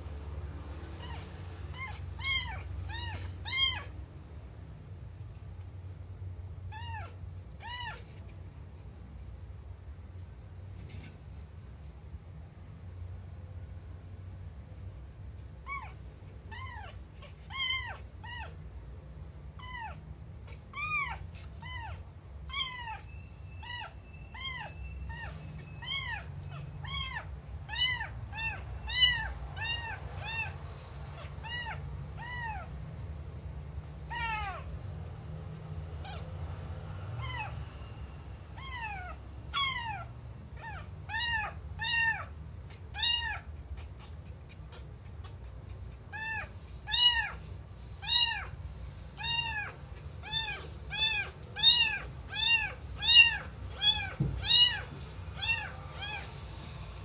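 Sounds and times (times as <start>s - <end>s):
kitten meowing: 1.0s - 4.0s, 6.7s - 8.2s, 15.6s - 18.6s, 19.6s - 32.7s, 34.0s - 34.7s, 37.2s - 37.6s, 38.5s - 45.5s, 46.1s - 47.4s, 48.0s - 48.6s, 49.2s - 56.3s.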